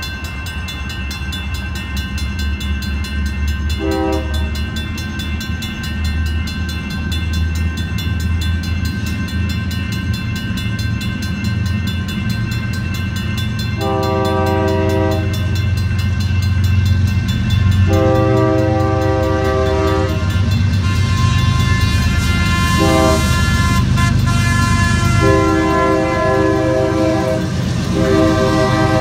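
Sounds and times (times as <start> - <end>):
locomotive engine rumbling: 0.0 - 29.0
train air horn blasts: 3.8 - 4.5, 13.8 - 15.5, 17.9 - 29.0.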